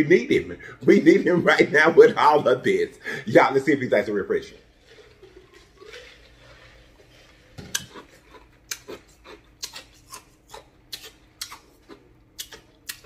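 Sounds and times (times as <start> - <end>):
man smacking lips: 7.7 - 13.0.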